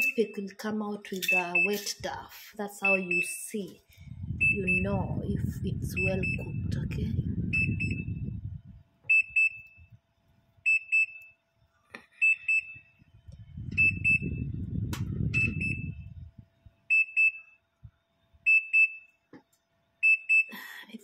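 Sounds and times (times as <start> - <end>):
oven timer beeping: 0.0 - 0.5, 1.2 - 2.0, 2.8 - 3.5, 4.4 - 8.4, 9.1 - 10.0, 10.6 - 11.4, 12.2 - 13.0, 13.7 - 16.2, 16.9 - 17.7, 18.4 - 19.2, 20.0 - 20.5
low muffled noise: 1.2 - 8.9, 13.0 - 16.8.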